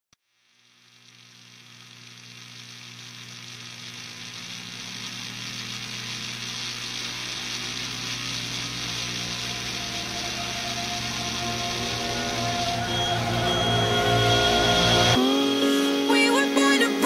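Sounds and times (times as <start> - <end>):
even hiss: 0.2 - 17.0
steady drone: 3.4 - 17.0.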